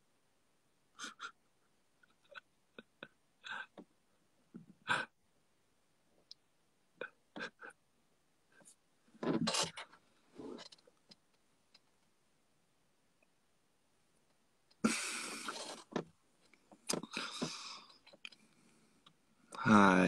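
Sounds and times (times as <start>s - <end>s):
quiet breathy laughter: 0.9s - 3.9s, 4.6s - 5.2s, 7.0s - 7.8s, 14.8s - 15.9s, 17.0s - 18.9s.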